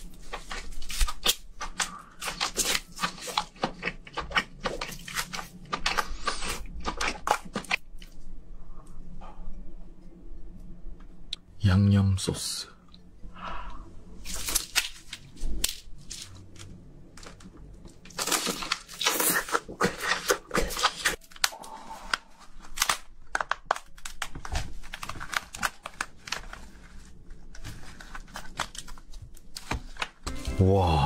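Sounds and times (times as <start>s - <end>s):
shells cracking and tearing: 0.2s - 8.2s, 14.2s - 30.2s.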